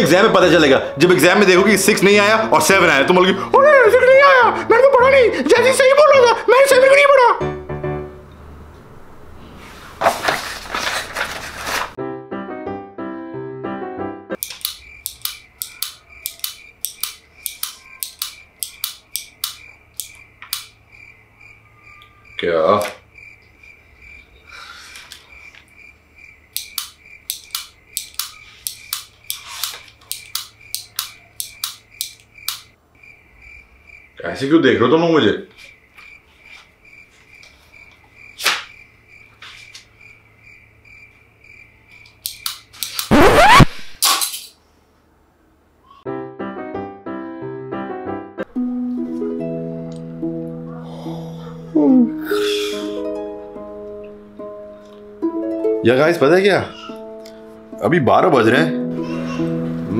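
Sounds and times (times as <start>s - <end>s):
ballpoint pen clicking: 14.4s - 20.7s, 26.5s - 32.7s, 42.0s - 43.1s
cricket chirping: 14.4s - 43.2s.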